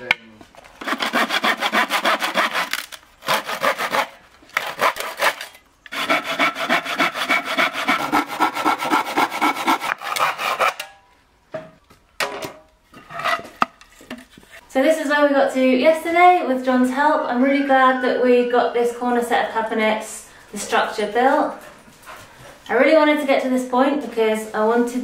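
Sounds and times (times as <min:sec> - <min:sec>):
hand saw cutting wood: 0:00.8 - 0:10.9.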